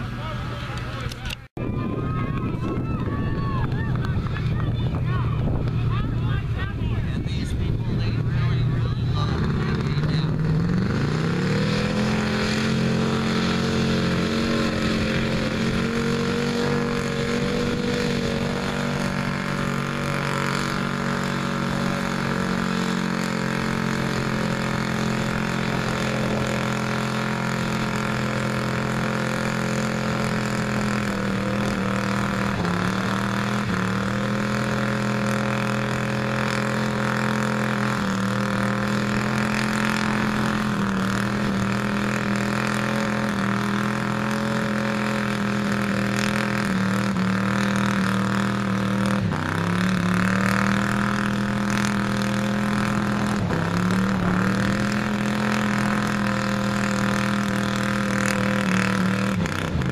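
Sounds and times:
truck engine revving hard: 0:00.0 - 0:01.0, 0:02.4 - 0:59.9
wheels spinning in mud: 0:08.8 - 0:59.9.

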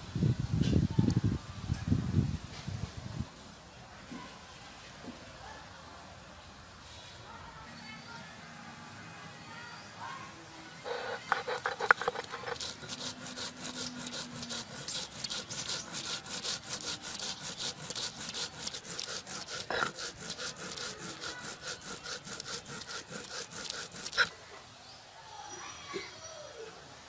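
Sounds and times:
stone grinding on stone: 0:10.8 - 0:24.3.

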